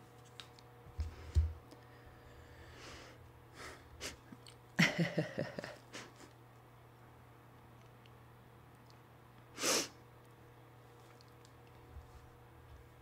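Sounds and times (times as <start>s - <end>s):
person breathing: 1.0s - 4.2s.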